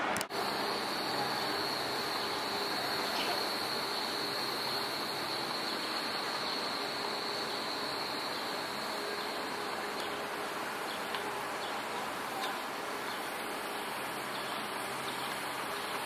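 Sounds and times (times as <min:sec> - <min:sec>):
city street noise: 0:00.0 - 0:16.0
high-pitched whine: 0:00.0 - 0:16.0.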